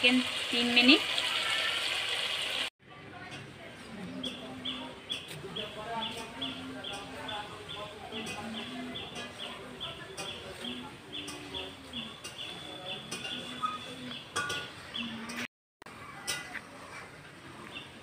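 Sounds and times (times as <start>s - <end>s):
bird chirping: 4.0s - 15.4s.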